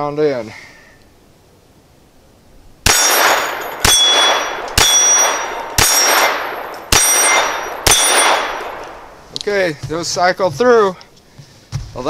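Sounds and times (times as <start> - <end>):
pistol shots: 2.8 - 9.2
steel target ringing clang: 2.8 - 9.2.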